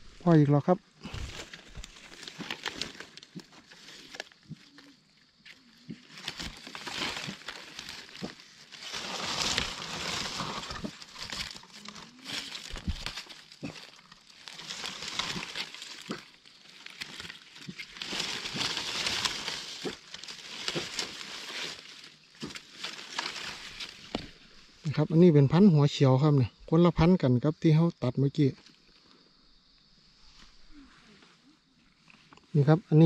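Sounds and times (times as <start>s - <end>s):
leaf litter rustling and crackling: 1.0s - 24.9s.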